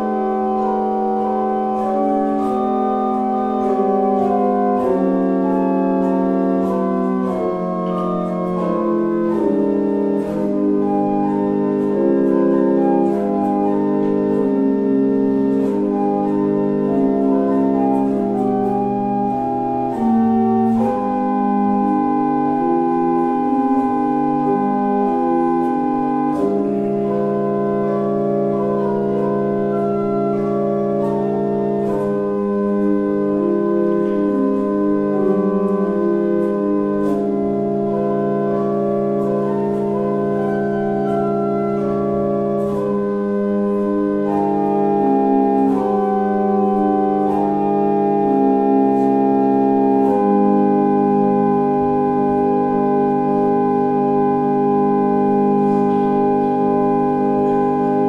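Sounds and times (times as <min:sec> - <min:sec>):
church pipe organ chords: 0:00.0 - 0:58.0.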